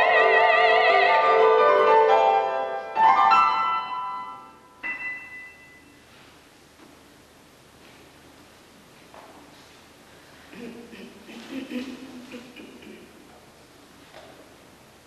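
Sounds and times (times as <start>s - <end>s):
woman singing with vibrato: 0.0s - 1.7s
grand piano chords: 0.0s - 6.2s.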